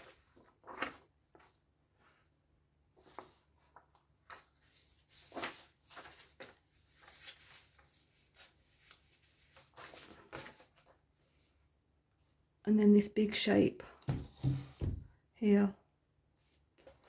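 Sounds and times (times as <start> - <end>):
paper rustling and sliding: 0.0 - 2.3, 3.0 - 11.4.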